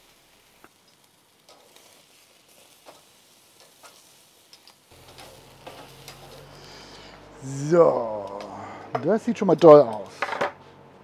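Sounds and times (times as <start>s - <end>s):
steak sizzling on a grill: 0.0s - 8.5s.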